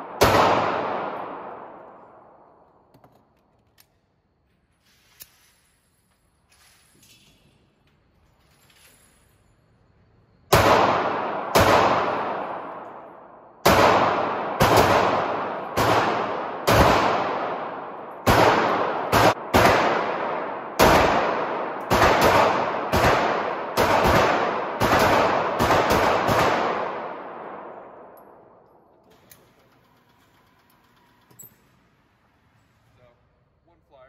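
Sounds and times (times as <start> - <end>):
pistol shots echoing indoors: 0.0 - 2.9, 10.5 - 29.0.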